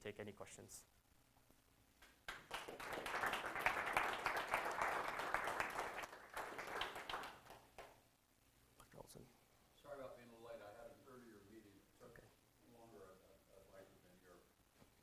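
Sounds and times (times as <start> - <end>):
audience applauding: 2.3 - 8.0.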